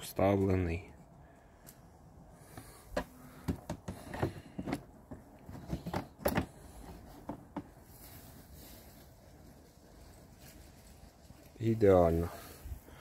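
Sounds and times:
plastic panel clicking and creaking: 3.0 - 7.7.

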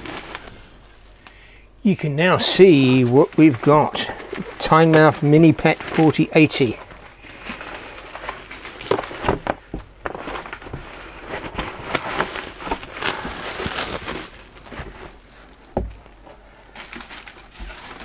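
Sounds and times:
bubble wrap crinkling: 0.0 - 18.0
cardboard scraping: 2.2 - 15.3.

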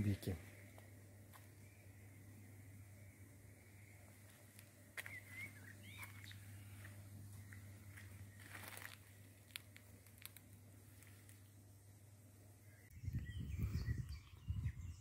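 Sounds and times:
low hum: 0.4 - 15.0
faint clicks and rustles: 6.0 - 11.6.

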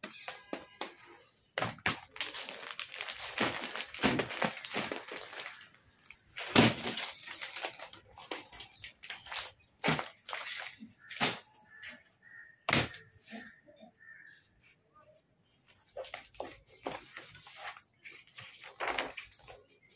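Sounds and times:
plastic packaging crinkling: 1.6 - 11.4.

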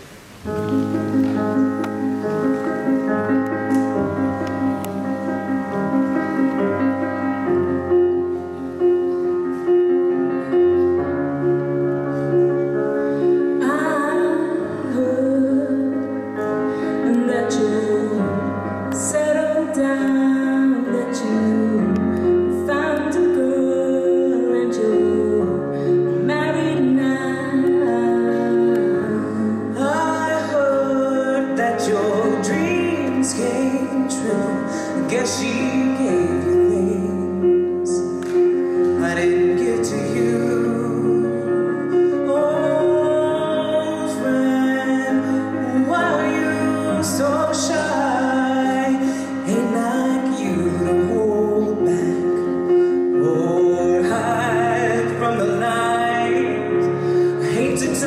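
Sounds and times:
piano chords: 0.0 - 58.0
woman singing: 13.4 - 38.2, 39.0 - 58.0.

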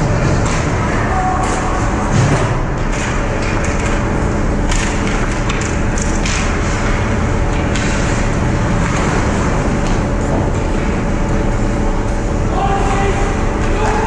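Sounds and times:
hockey sticks and puck knocking: 0.0 - 11.0
rink hall rumble: 0.0 - 14.0
skates scraping ice: 0.1 - 12.2.

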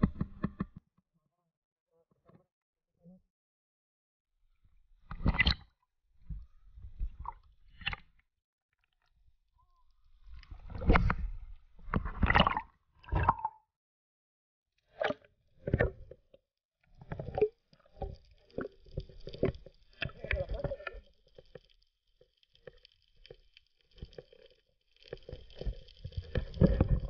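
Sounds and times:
water splashing and sloshing: 5.0 - 5.7, 10.2 - 13.5, 16.9 - 27.0.

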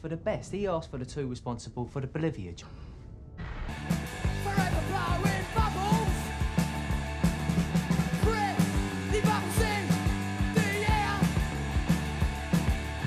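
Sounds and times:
rock music drum beat: 3.7 - 13.0
person singing: 4.4 - 6.3, 8.2 - 11.4.

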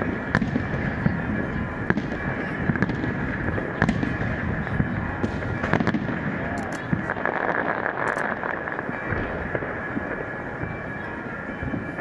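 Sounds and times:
continuous dense din: 0.0 - 12.0
fireworks bangs and crackles: 0.0 - 12.0.

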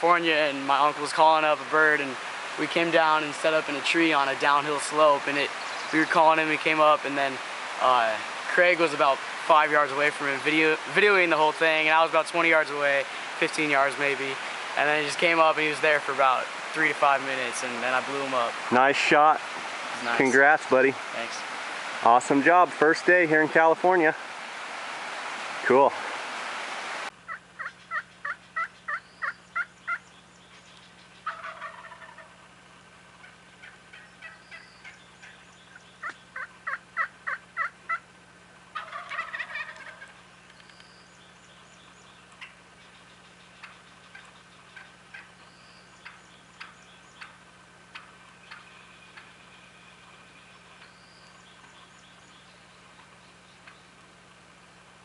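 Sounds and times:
turkey yelps: 27.2 - 32.4, 33.2 - 38.1, 38.7 - 40.2, 42.3 - 43.0, 43.6 - 53.9
turkey gobble: 27.2 - 32.5, 33.2 - 38.1, 38.7 - 40.2, 42.3 - 54.0.

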